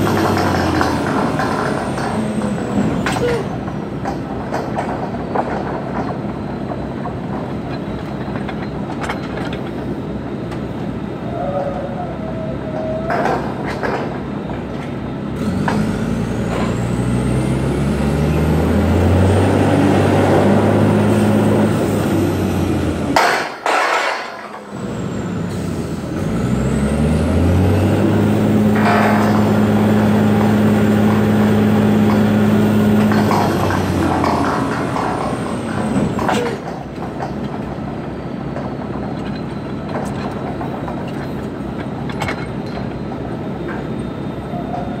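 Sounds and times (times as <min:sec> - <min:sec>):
rig engine idling and revving: 0:00.0 - 0:06.1, 0:14.8 - 0:23.3, 0:24.6 - 0:38.0
metal clanks: 0:00.0 - 0:09.9, 0:23.1 - 0:24.7, 0:28.6 - 0:45.0.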